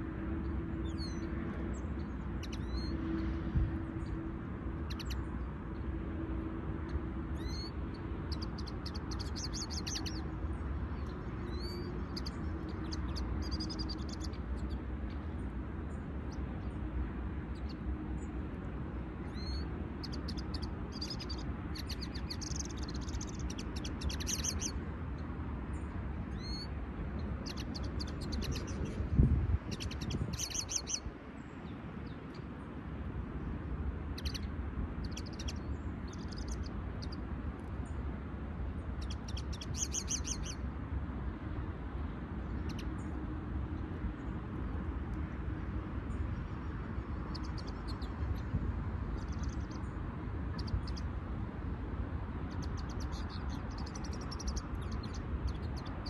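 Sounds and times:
wind rumble on microphone: 0.0 - 56.0
finches twittering: 2.0 - 5.2, 7.3 - 15.2, 19.2 - 24.8, 26.3 - 31.1, 34.1 - 37.2, 38.9 - 40.6, 47.0 - 51.1, 52.4 - 56.0.

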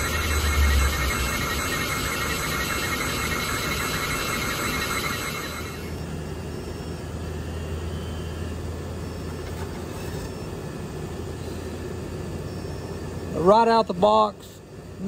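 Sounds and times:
shop machinery humming: 0.0 - 12.0.

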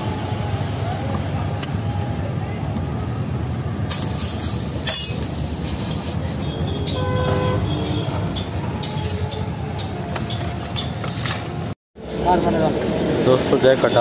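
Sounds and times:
air compressor running: 3.8 - 6.5.

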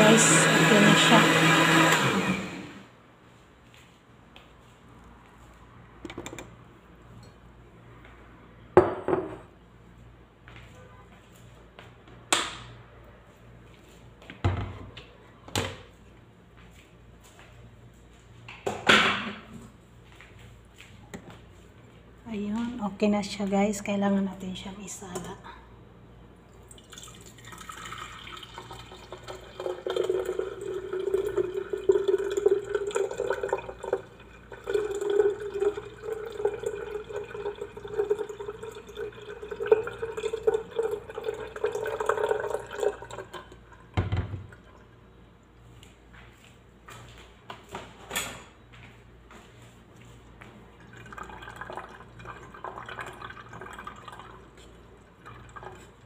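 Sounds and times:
juice pouring through a strainer: 26.5 - 43.9, 50.8 - 56.0.

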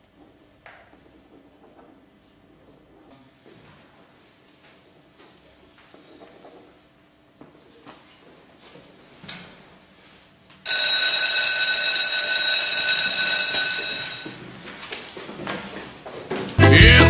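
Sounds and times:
school bell ringing: 10.7 - 14.4
music: 16.6 - 17.0.

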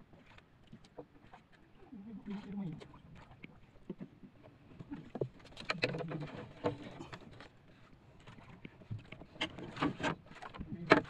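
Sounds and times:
water splashing against boat hull: 8.2 - 11.0.

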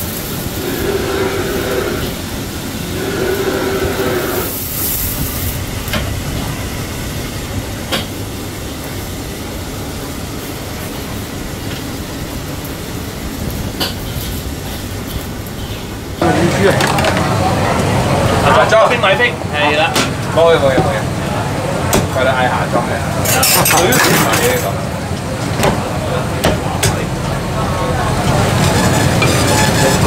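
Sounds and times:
fire roaring: 0.0 - 23.4.

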